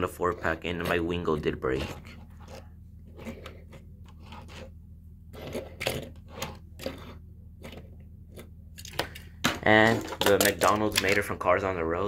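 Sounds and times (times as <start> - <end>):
steady low hum: 0.0 - 12.0
toy cars clicking and scraping: 5.3 - 11.4.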